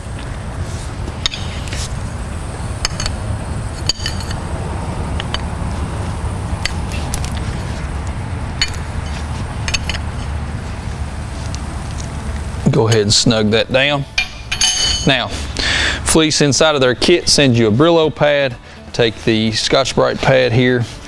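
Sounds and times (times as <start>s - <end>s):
low hum: 0.0s - 17.0s
wrench clinking on metal fitting: 2.8s - 3.2s, 3.8s - 4.4s, 8.6s - 9.1s, 9.7s - 10.1s, 14.1s - 15.3s.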